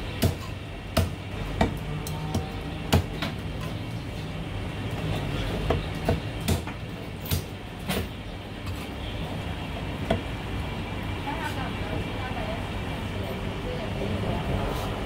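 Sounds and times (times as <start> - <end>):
cleaver chopping on wooden block: 0.2 - 3.4, 5.6 - 7.5.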